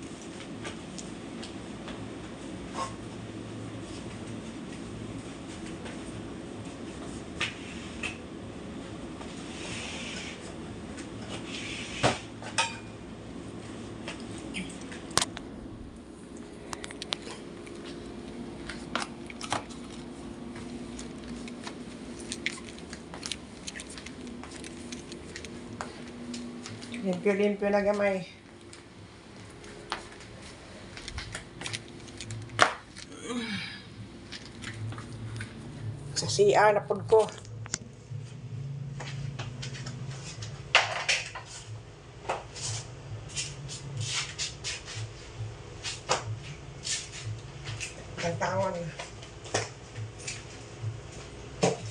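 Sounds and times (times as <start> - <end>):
steady low hum: 0.0 - 51.9
scraping and brushing: 42.4 - 46.1.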